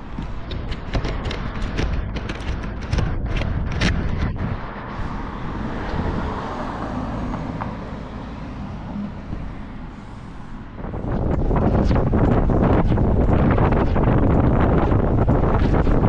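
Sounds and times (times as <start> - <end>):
road traffic rushing: 0.0 - 15.4.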